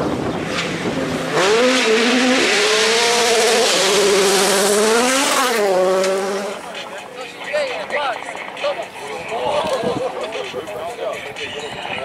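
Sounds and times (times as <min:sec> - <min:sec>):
rally car engine at high revs: 0:00.0 - 0:06.8.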